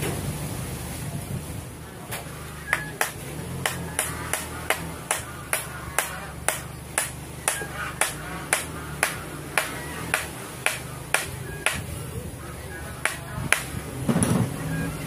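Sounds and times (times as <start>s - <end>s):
hammer tapping nail into wood: 2.8s - 11.8s.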